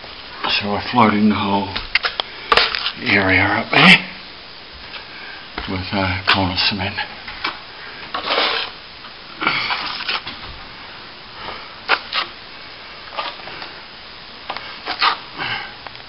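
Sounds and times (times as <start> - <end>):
trowel scraping cement: 8.1 - 8.8, 9.6 - 10.2, 14.9 - 15.2.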